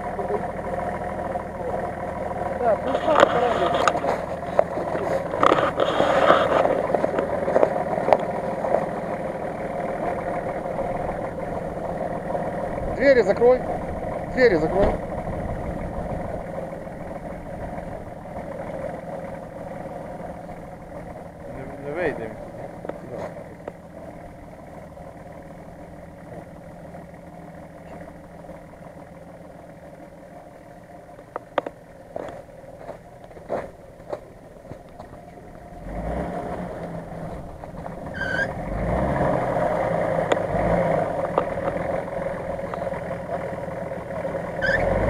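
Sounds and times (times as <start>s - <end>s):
engine revving under load: 35.7s - 45.0s
brief squeal: 38.1s - 38.6s, 44.6s - 44.9s.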